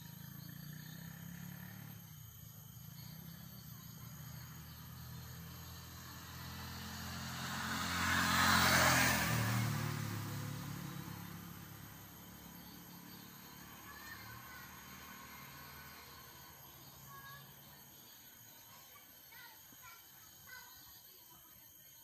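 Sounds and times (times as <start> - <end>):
motor vehicle passing by: 0.0 - 20.0.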